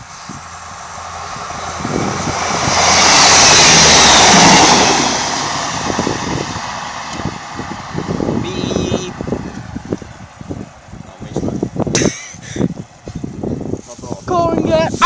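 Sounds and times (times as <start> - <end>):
train passing at speed: 0.0 - 11.4.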